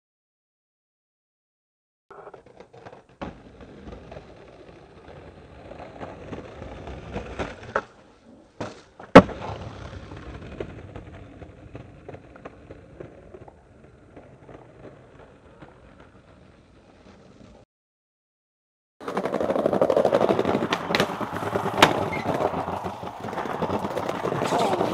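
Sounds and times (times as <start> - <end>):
skateboard wheels rolling on stone: 2.1 - 17.7, 19.0 - 24.9
skateboard hard landing: 5.0 - 16.2, 19.0 - 24.9
skateboard pop: 5.8 - 16.2, 19.0 - 24.9.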